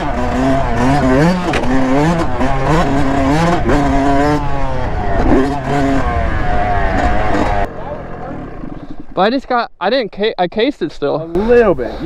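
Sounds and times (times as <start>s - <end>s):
dirt bike engine revving: 0.0s - 9.2s.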